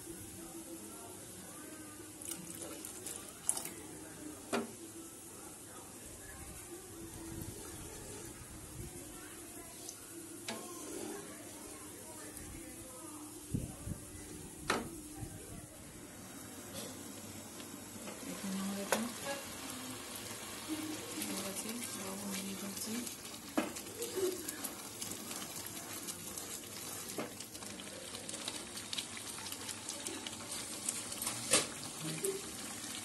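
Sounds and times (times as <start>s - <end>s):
gravy bubbling and sizzling in a pan: 0.0s - 33.0s
wooden spatula stirring: 10.5s - 11.7s, 20.7s - 31.4s.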